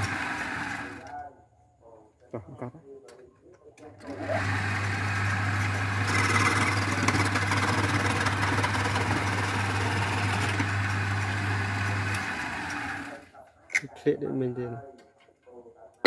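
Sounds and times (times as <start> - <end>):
electric wood lathe humming: 0.0 - 1.0, 4.1 - 13.2
chisels scraping spinning wood: 5.3 - 12.8.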